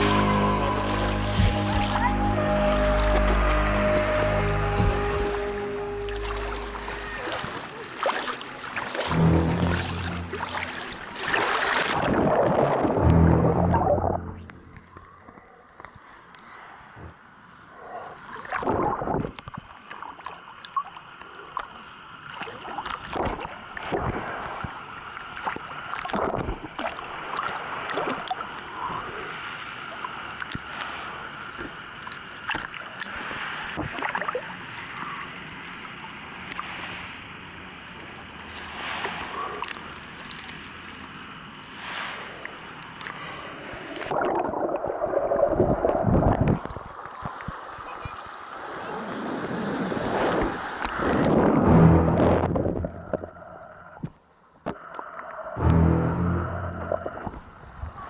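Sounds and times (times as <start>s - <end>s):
sea water sloshing and gurgling: 0.0s - 14.9s, 16.1s - 55.6s
dull water rush: 0.0s - 58.0s
splashes and handling knocks: 6.0s - 12.8s.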